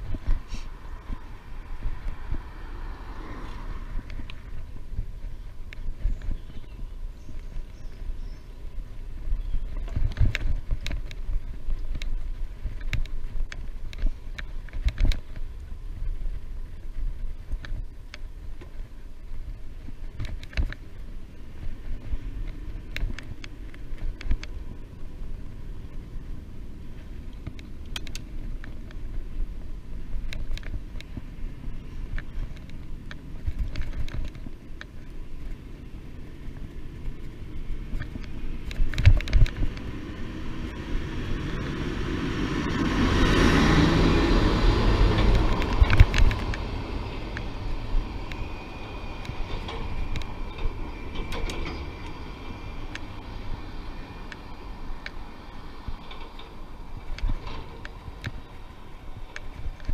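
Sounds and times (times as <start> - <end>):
vehicle passing with tyre hiss: 0.0 - 5.4, 39.7 - 59.8
wind rumbling on microphone: 0.0 - 59.9.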